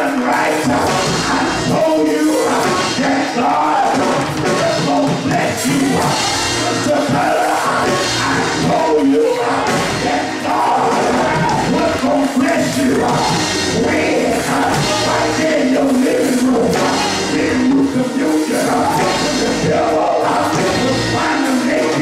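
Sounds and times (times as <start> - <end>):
gospel music with steady beat: 0.0 - 22.0
person singing through speakers: 0.0 - 22.0.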